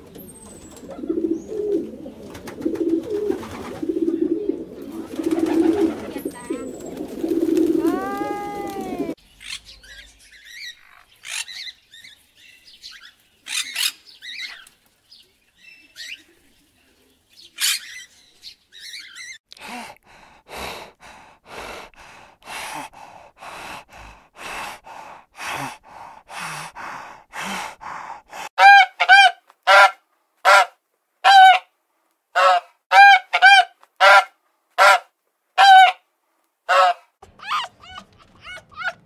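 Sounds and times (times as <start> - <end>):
soft breathy huffs: 19.6 - 28.6
waterfowl honking: 28.6 - 30.7, 32.4 - 35.0, 35.6 - 36.0, 36.7 - 39.0.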